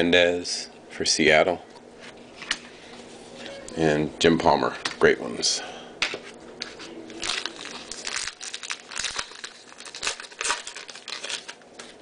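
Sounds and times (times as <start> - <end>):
card pack wrapper crinkling and tearing: 7.2 - 12.0.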